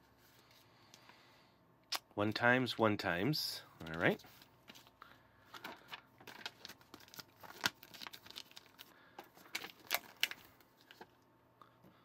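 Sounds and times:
paper booklet pages rustling: 0:03.8 - 0:04.9, 0:05.5 - 0:11.1.

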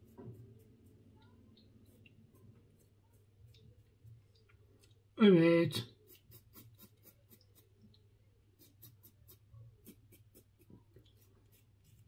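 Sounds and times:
razor scraping beard stubble: 0:06.0 - 0:07.7.

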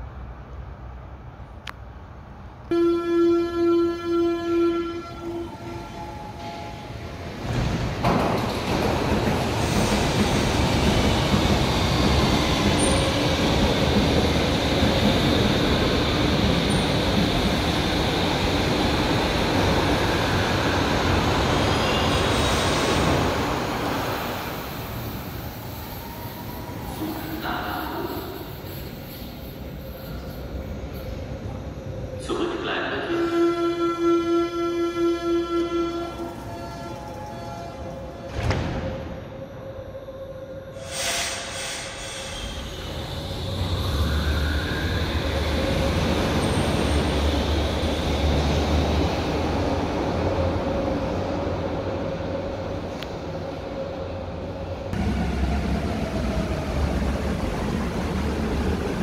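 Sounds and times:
train running past: 0:04.9 - 0:59.0
air hiss: 0:40.8 - 0:42.6.

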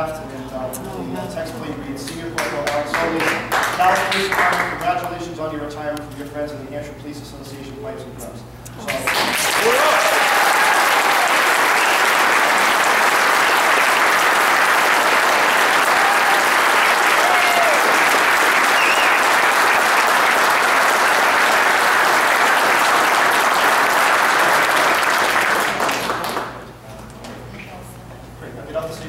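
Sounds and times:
audience applauding: 0:02.4 - 0:04.8, 0:08.9 - 0:26.6.

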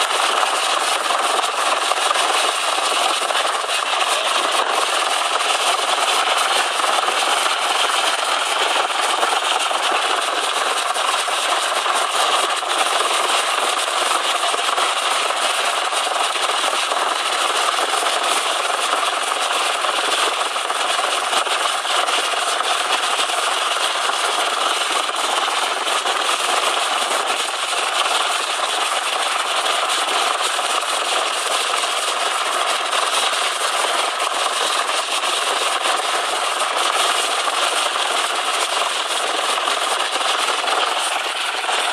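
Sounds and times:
helicopter turbine and rotor noise: 0:00.0 - 0:15.4, 0:36.3 - 0:41.9.

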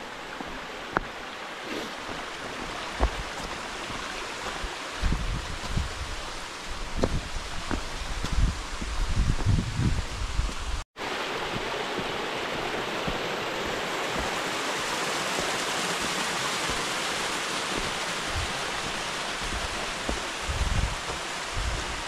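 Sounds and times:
running water: 0:00.0 - 0:22.0.

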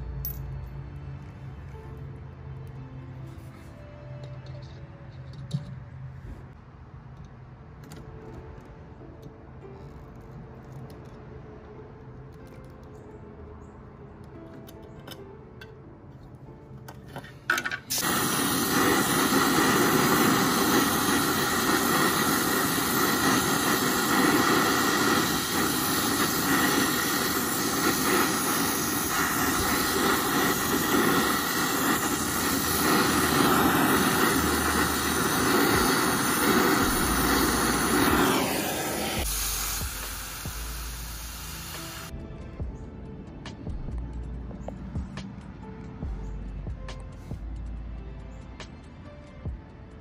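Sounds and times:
refrigerant gas hissing: 0:17.6 - 0:42.1.

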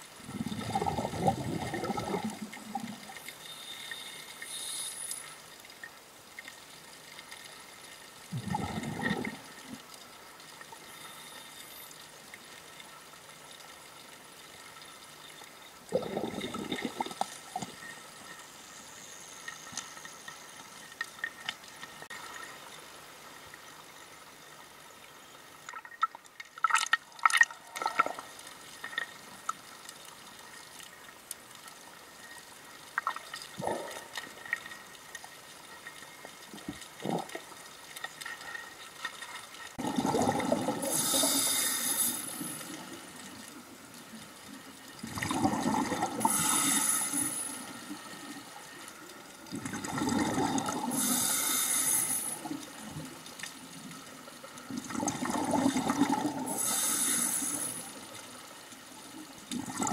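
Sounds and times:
faint underwater hiss: 0:00.0 - 0:25.8, 0:27.6 - 0:59.9
diver exhaling bubbles: 0:00.2 - 0:03.0, 0:08.3 - 0:09.4, 0:15.9 - 0:17.2, 0:39.8 - 0:42.6, 0:45.0 - 0:47.3, 0:49.5 - 0:51.7, 0:54.8 - 0:57.6.

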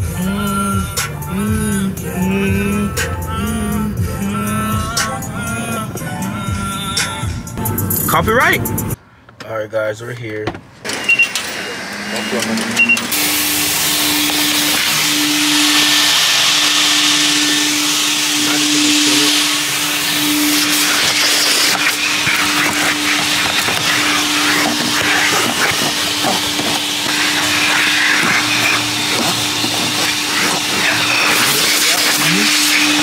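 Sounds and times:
nozzle scraping carpet: 0:10.8 - 0:33.0
vacuum cleaner running: 0:10.9 - 0:33.0.

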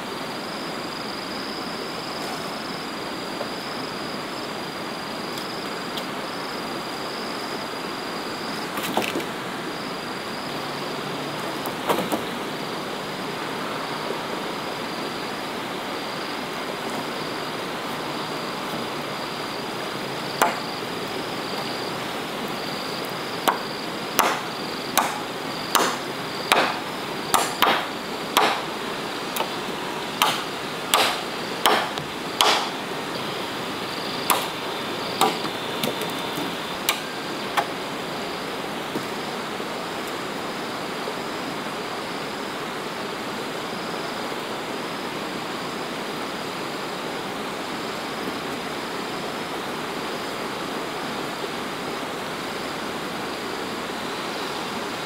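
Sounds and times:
high insect drone: 0:00.0 - 0:55.0
wood chopping: 0:20.4 - 0:20.7, 0:23.4 - 0:28.7, 0:30.2 - 0:32.8, 0:34.3 - 0:34.6, 0:35.2 - 0:37.7.

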